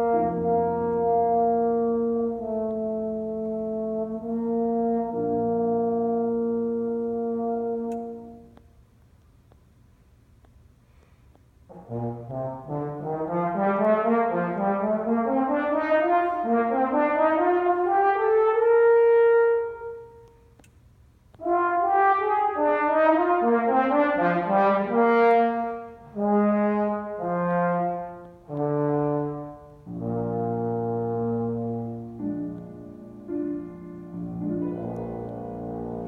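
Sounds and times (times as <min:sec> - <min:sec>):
solo brass instrument playing: 0:00.0 - 0:08.6, 0:11.7 - 0:20.4, 0:21.4 - 0:36.0.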